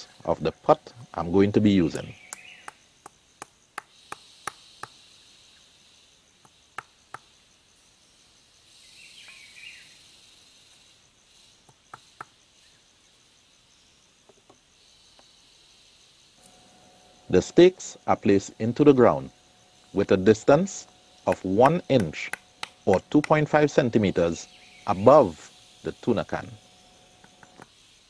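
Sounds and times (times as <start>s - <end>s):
high insect drone: 0.0s - 28.0s
insect chirping: 0.0s - 28.0s
wooden stakes tapping and knocking: 1.9s - 5.0s, 20.8s - 23.8s.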